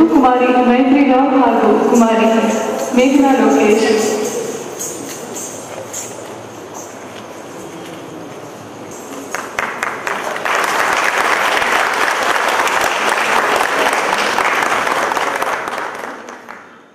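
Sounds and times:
audience applauding: 9.1 - 16.9.

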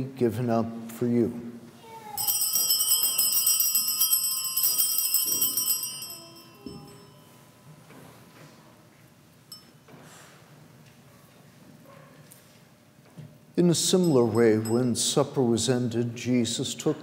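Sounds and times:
hand bells jingling: 2.1 - 7.4, 13.9 - 15.2.

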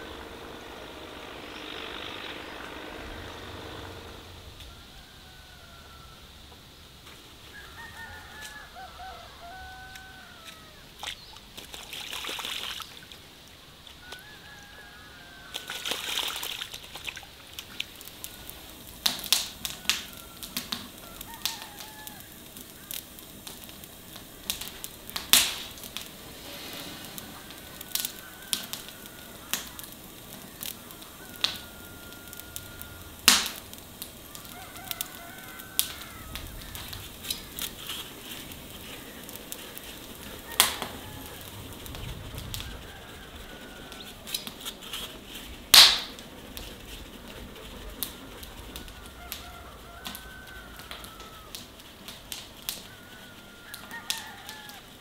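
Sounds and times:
birds chirping: 0.0 - 52.0
wood fire crackling: 0.0 - 55.0
brief hissing rushes: 18.0 - 34.4.

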